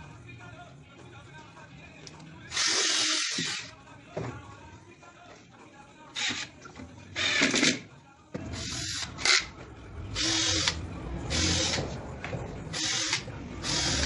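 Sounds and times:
cordless drill boring into wood: 10.2 - 11.8, 12.8 - 14.0.

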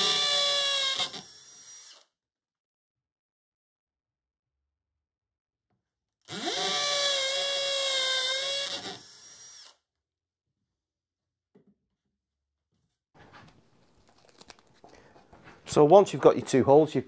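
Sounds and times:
cordless drill boring into wood: 0.0 - 2.1, 6.3 - 9.8.

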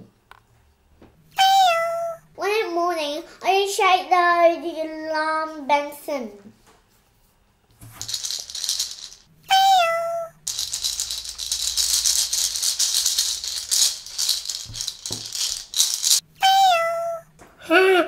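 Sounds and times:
candies rattling in plastic dispenser: 8.0 - 9.3, 10.4 - 16.2.

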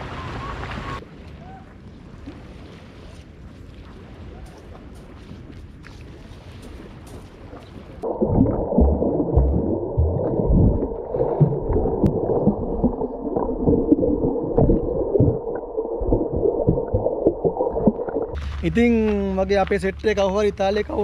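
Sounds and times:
churning water underwater: 0.0 - 21.0
low hum: 8.0 - 21.0.

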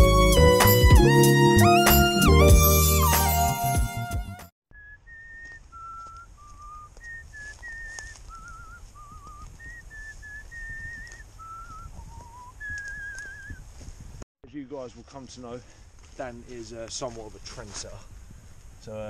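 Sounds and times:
person whistling a slow tune: 4.7 - 13.6.

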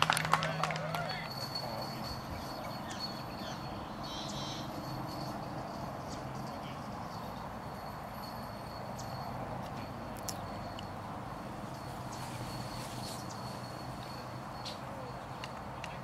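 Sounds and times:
faint high steady tone: 1.2 - 16.0.

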